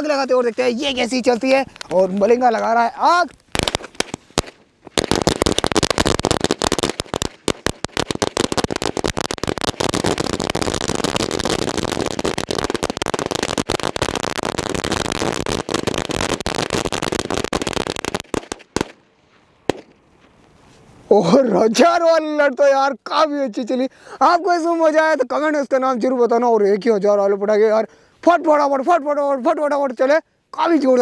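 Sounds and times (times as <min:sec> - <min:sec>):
firecracker string bangs: 0:03.5 - 0:19.0.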